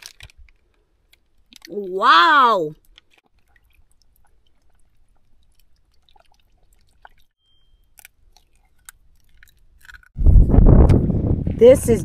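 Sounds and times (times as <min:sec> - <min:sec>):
egg cracking: 0:02.8 - 0:10.2.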